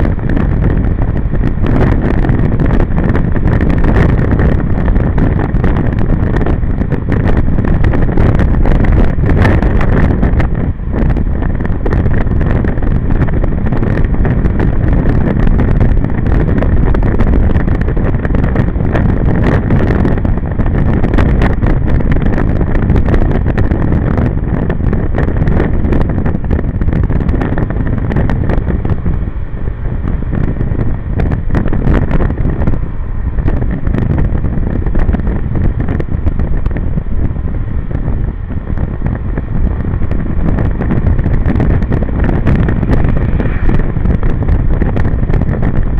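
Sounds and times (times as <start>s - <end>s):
wind buffeting microphone: 0.0s - 45.9s
tyres on wet road: 26.9s - 45.9s.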